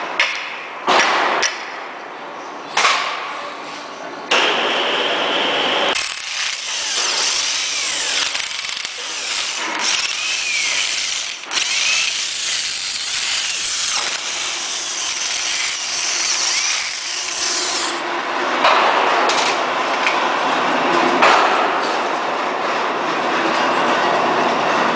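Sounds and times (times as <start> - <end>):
power tool motor whine: 5.9 - 18.0.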